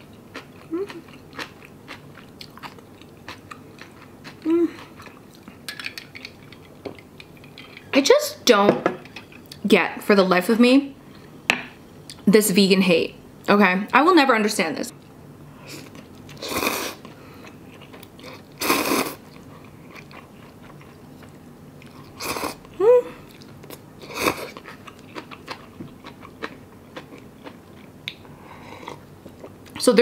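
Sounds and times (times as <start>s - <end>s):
soft chewing with crunchy clicks: 0.0s - 8.0s, 15.8s - 16.4s, 17.0s - 18.6s, 19.2s - 29.8s
slurping noodles: 18.6s - 19.2s.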